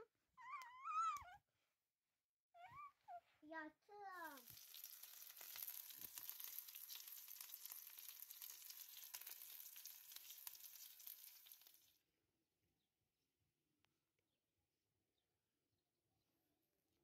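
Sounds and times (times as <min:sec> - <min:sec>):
chicken sizzling in a pan: 0:04.2 - 0:12.0.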